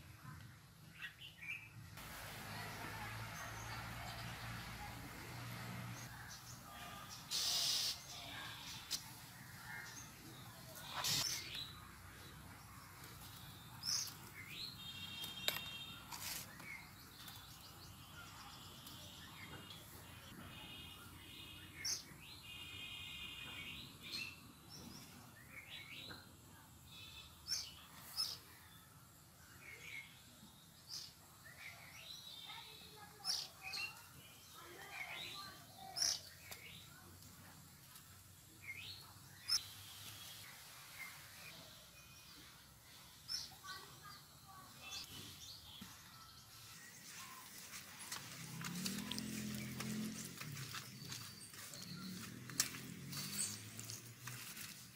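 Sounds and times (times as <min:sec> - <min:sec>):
birds chirping and calling: 0:06.0 - 0:12.4, 0:30.9 - 0:36.9, 0:38.6 - 0:54.8.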